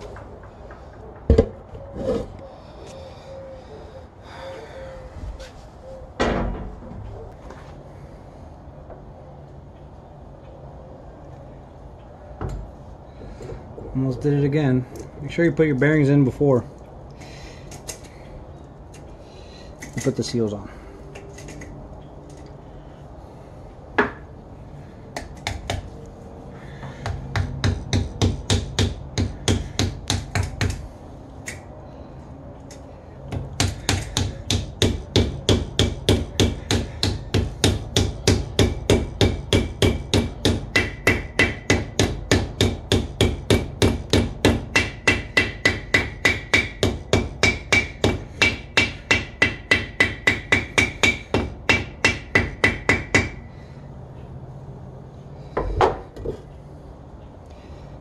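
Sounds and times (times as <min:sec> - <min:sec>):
hammer tapping metal: 0:33.3 - 0:53.4.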